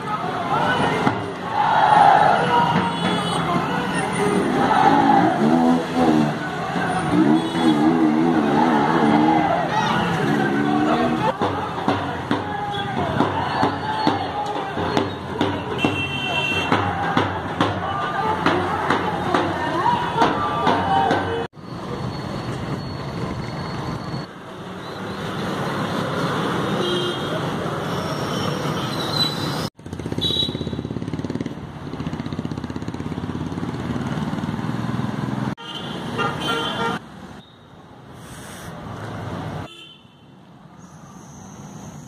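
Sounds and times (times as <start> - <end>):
street traffic: 0.0 - 42.0
car horns honking: 2.4 - 4.4, 5.5 - 8.6, 14.9 - 16.8, 35.6 - 37.0.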